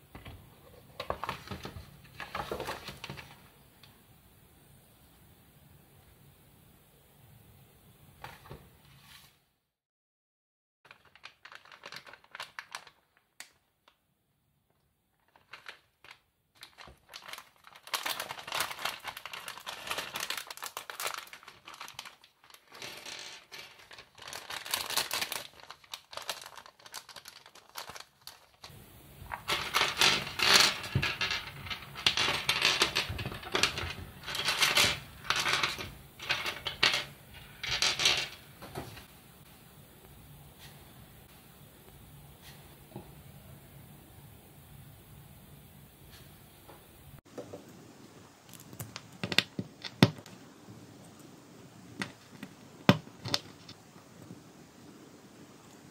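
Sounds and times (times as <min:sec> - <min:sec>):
foil bag crinkling and tearing: 0:10.9 - 0:14.0, 0:15.2 - 0:36.9
plastic pieces clicking on tabletop: 0:29.4 - 0:38.4.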